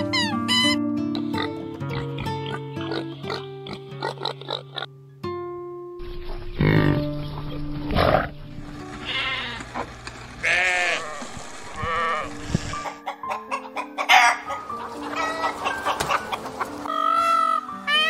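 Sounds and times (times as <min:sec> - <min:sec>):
background music: 0:00.0 - 0:09.5, 0:11.8 - 0:18.0
sheep bleating: 0:09.0 - 0:09.7, 0:10.4 - 0:12.7
chickens clucking: 0:12.6 - 0:18.0.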